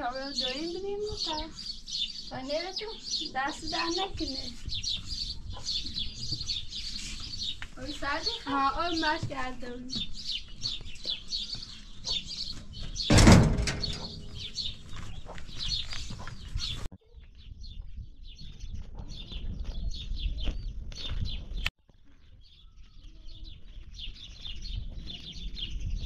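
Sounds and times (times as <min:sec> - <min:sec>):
small birds chirping: 0:00.0 - 0:26.0
metal door creaking scrape: 0:13.0 - 0:14.8.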